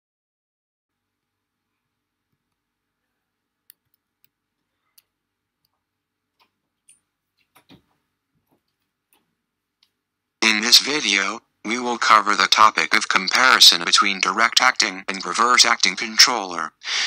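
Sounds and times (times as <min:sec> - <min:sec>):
soft clicks: 0:03.6 - 0:07.8.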